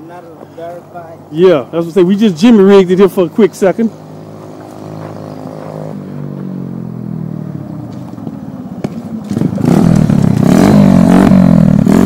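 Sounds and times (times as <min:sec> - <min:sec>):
dirt bike engine revving: 0:03.5 - 0:07.4, 0:09.2 - 0:12.0.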